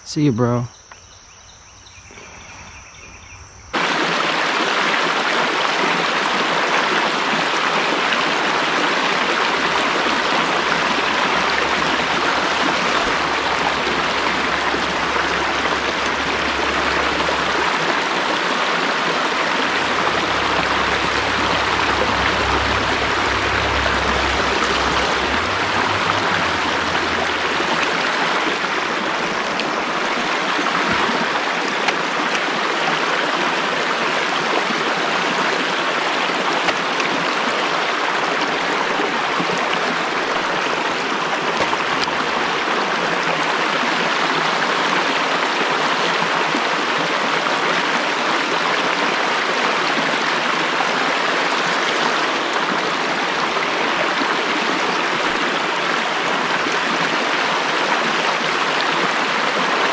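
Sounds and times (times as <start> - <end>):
stream water flowing: 2.0 - 59.9
low rumble: 9.4 - 30.2.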